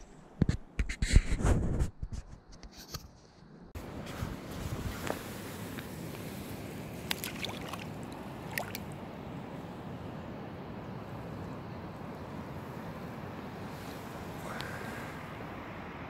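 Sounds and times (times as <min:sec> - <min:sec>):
steady rushing background noise: 0:03.8 - 0:16.0
fish splashing in shallow water: 0:06.6 - 0:09.0
short sharp splashes: 0:07.0 - 0:09.0.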